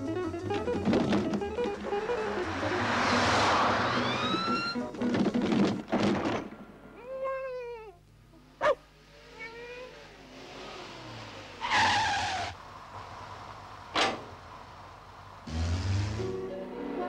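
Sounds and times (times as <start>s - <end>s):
low engine hum: 0.0s - 5.0s, 12.6s - 16.6s
tyre screech: 1.3s - 4.9s, 11.6s - 12.6s.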